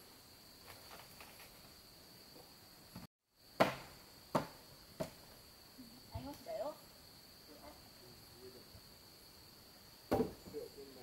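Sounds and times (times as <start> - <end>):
high insect trill: 0.0 - 11.0
knocks on wooden frame: 10.1 - 10.6.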